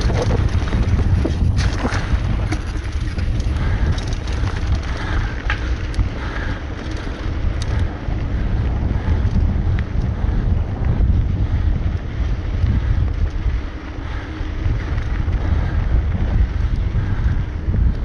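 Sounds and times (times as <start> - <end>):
tyres rolling over dirt: 0.0 - 7.9
bike clicks and rattles: 0.0 - 18.0
wind rumbling on microphone: 0.0 - 18.0.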